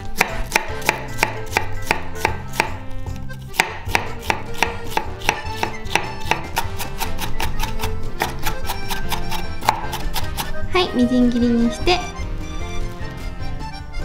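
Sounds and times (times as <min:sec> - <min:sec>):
knife chopping on wooden board: 0:00.1 - 0:10.6.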